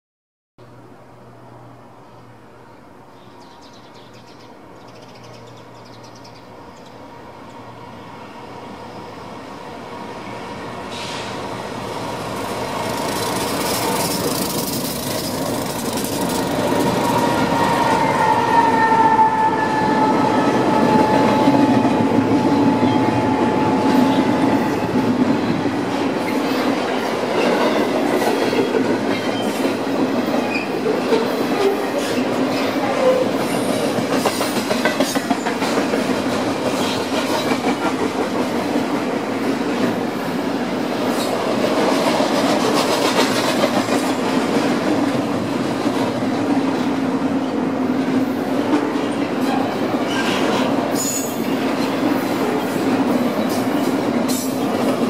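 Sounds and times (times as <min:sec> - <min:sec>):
diesel freight train rumble: 0:06.5 - 0:55.0
locomotive high whine: 0:07.7 - 0:27.3
wheels clicking over rail joints: 0:12.4 - 0:18.1, 0:33.8 - 0:38.9.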